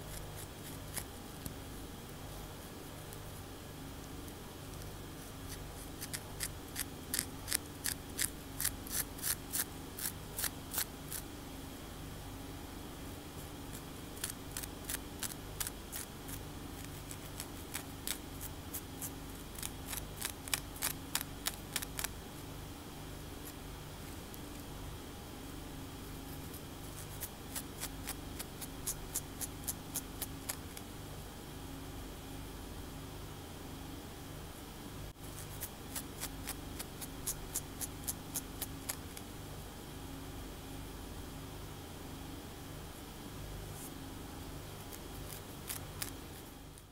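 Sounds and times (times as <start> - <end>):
fingernails scratching scalp: 0.0 - 1.2, 4.8 - 11.2, 13.7 - 22.1, 26.4 - 30.8, 35.2 - 39.2, 44.9 - 46.2
steady low hum: 0.0 - 46.9.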